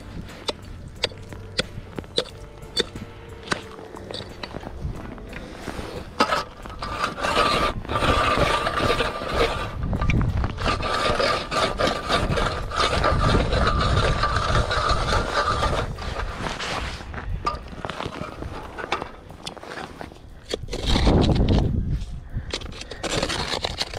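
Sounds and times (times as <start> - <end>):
ice auger grinding ice: 0.0 - 21.7, 22.5 - 23.9.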